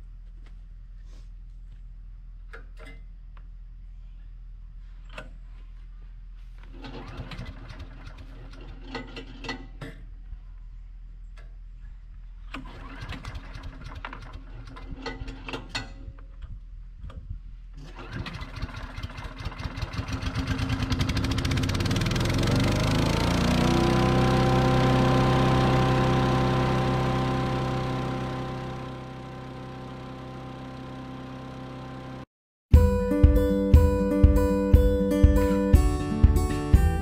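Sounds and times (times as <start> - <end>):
small gas engine running: 6.8 - 9.0, 12.5 - 15.0, 17.8 - 32.3
pull starter rattling: 6.8 - 9.5, 12.5 - 15.9, 17.8 - 32.0.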